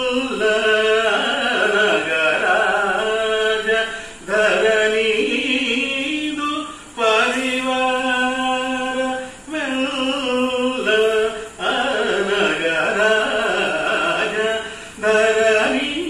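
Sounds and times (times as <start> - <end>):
man singing unaccompanied: 0.0 - 16.0
man breathing in: 3.9 - 4.2, 14.6 - 15.0.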